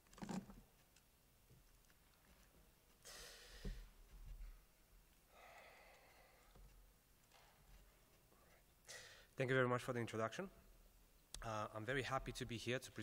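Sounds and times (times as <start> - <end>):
faint breaths: 3.0 - 6.9, 7.5 - 9.4.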